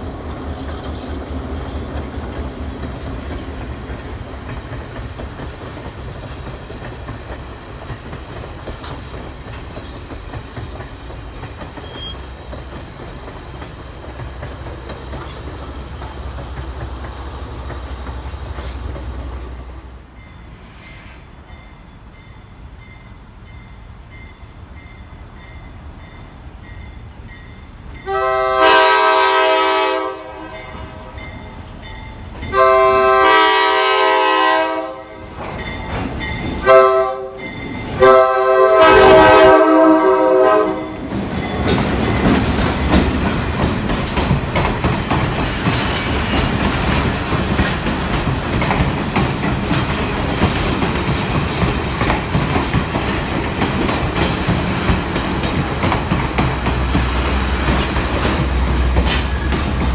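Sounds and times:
train wheels clicking over rail joints: 0:00.0 - 0:19.9, 0:35.2 - 0:36.7, 0:41.0 - 0:59.9
locomotive air horn blasts: 0:28.0 - 0:31.3, 0:32.5 - 0:35.3, 0:36.6 - 0:37.4, 0:38.0 - 0:41.0.

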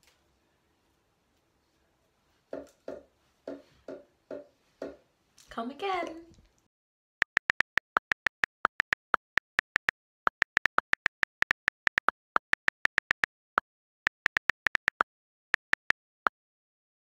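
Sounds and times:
phone keyboard clicks: 0:07.2 - 0:13.3, 0:14.1 - 0:15.0, 0:15.6 - 0:16.0.

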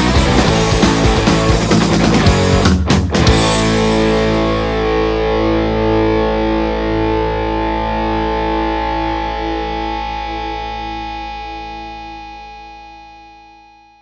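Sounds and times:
distorted electric guitar chord: 0:00.0 - 0:14.0.

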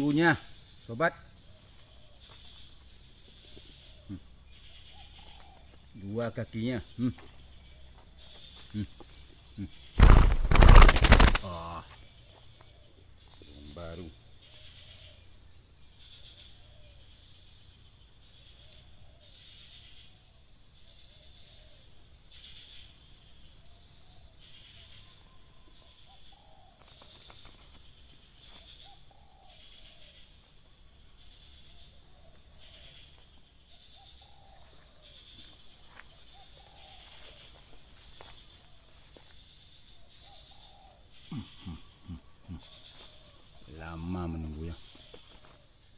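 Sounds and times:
insects buzzing in pulses: 0:00.0 - 0:45.9
steady high insect whine: 0:00.0 - 0:45.9
dove calling softly: 0:01.0 - 0:13.5, 0:24.0 - 0:30.3, 0:33.8 - 0:39.2, 0:40.0 - 0:45.7.

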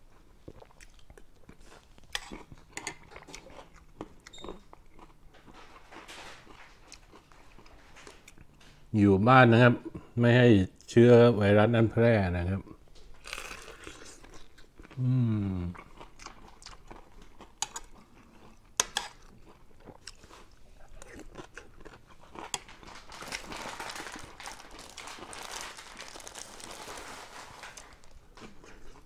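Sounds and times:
crunching and chewing food: 0:00.0 - 0:08.7, 0:12.6 - 0:29.0
person humming: 0:15.0 - 0:15.8.

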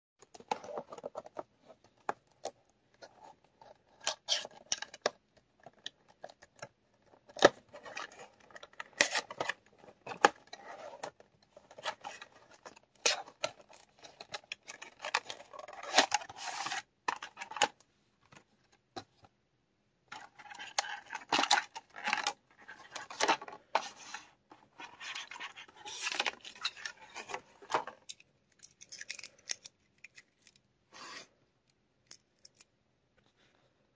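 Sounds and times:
cardboard and plastic packaging handled: 0:00.2 - 0:19.4, 0:20.1 - 0:31.3.

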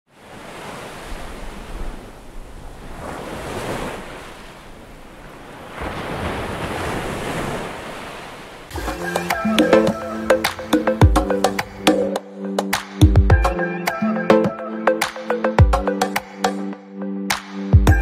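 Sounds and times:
waves washing in: 0:00.1 - 0:13.0.

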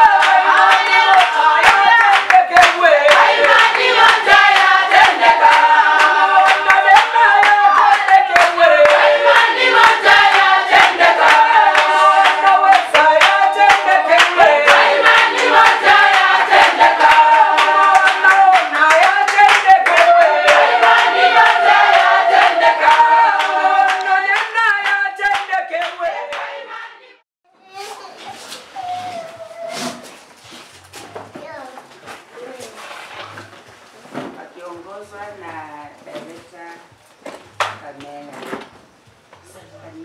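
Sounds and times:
hand-clapping on the beat: 0:00.0 - 0:26.9, 0:37.6 - 0:38.1
women singing together: 0:00.0 - 0:27.2.

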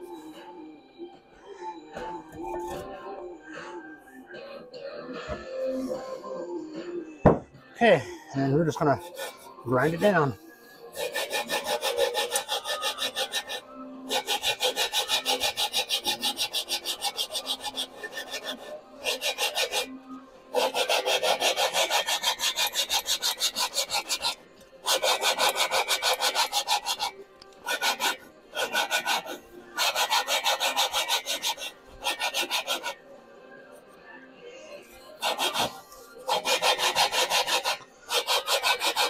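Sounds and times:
metal grinding against metal: 0:08.4 - 0:33.0, 0:34.9 - 0:39.0.

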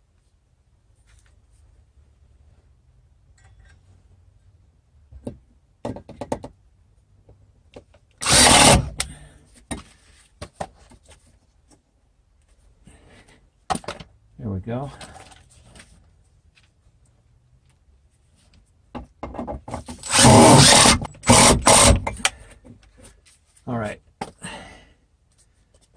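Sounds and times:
cordless drill burst: 0:08.2 - 0:09.1, 0:20.0 - 0:22.3.

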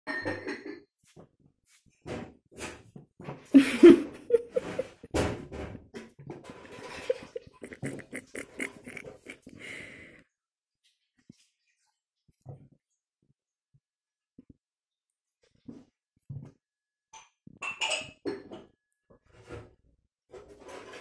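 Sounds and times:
kitten making small noises: 0:07.5 - 0:09.6.

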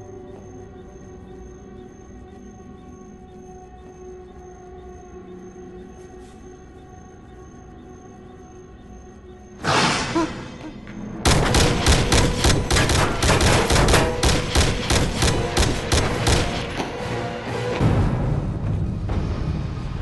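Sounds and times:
automatic gunfire: 0:11.3 - 0:16.4.

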